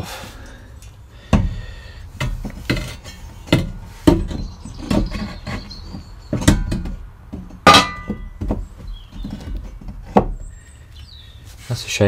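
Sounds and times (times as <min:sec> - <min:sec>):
fire grate knocking against stove: 0:06.4 - 0:08.6.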